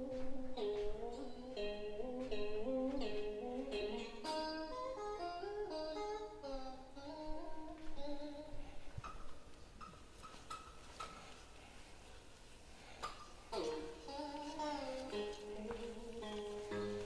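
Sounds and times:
background music: 0:00.0 - 0:08.5, 0:13.5 - 0:17.0.

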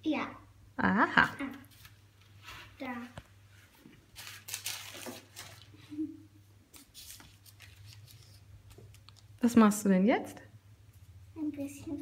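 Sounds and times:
paper sheet rustling: 0:01.4 - 0:05.9, 0:06.7 - 0:09.3.

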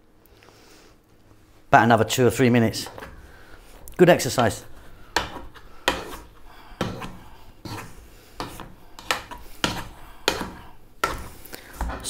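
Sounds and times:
potato masher knocking pot: 0:03.8 - 0:12.0.

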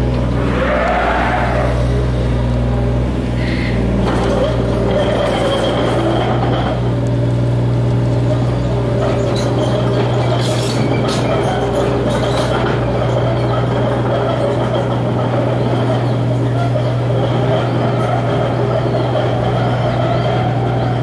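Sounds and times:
diesel engine drone: 0:00.0 - 0:21.0
crawler tracks noise: 0:00.2 - 0:01.9.

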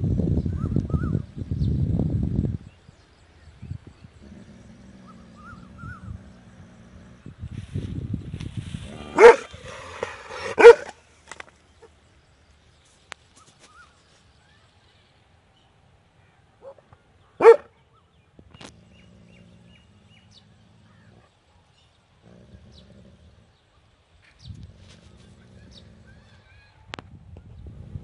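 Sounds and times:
large dog barking: 0:09.1 - 0:11.0, 0:17.4 - 0:17.7.

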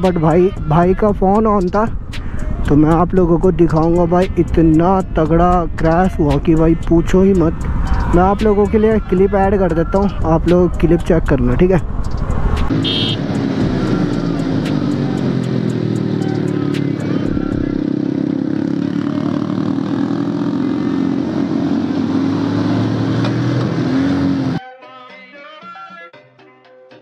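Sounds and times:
steady rushing noise: 0:11.4 - 0:12.8
motorcycle engine running: 0:11.8 - 0:23.0.

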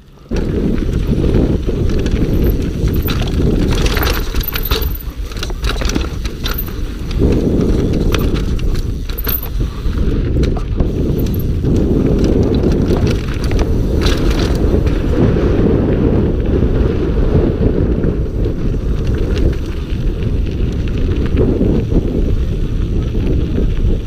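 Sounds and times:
wind rushing on microphone: 0:00.0 - 0:24.0
bike frame rattling and knocking: 0:00.2 - 0:15.2
bike chain slapping: 0:00.4 - 0:15.1.

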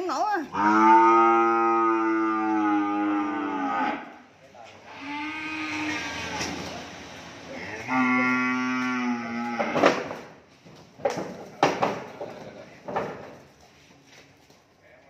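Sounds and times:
cattle mooing: 0:00.4 - 0:04.2, 0:04.9 - 0:06.6, 0:07.5 - 0:09.9.

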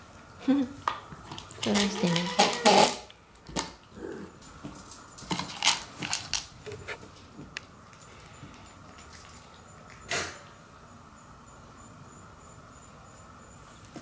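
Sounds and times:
cats crunching dry food: 0:00.8 - 0:10.1
pellets clicking against plastic bowl: 0:01.4 - 0:03.7.

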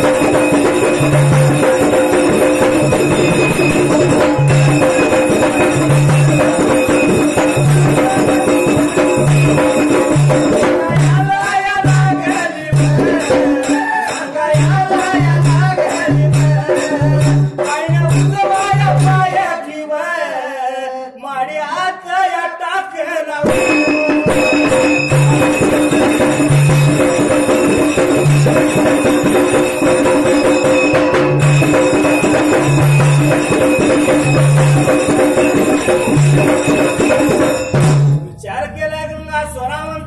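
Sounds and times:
barrel drums: 0:00.0 - 0:19.2, 0:23.4 - 0:38.3
hand cymbals: 0:00.0 - 0:19.4, 0:23.5 - 0:38.4
person singing: 0:07.7 - 0:08.9, 0:10.5 - 0:23.9, 0:38.3 - 0:40.0
held note: 0:23.5 - 0:39.3.

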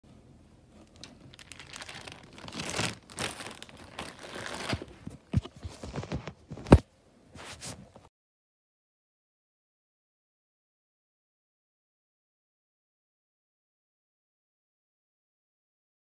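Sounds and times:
plastic bag crinkling: 0:00.8 - 0:06.7.

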